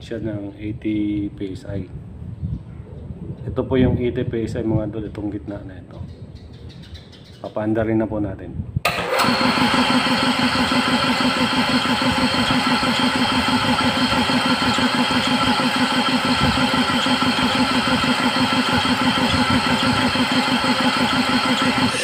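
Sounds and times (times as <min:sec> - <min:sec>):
air compressor running: 0:08.9 - 0:22.0.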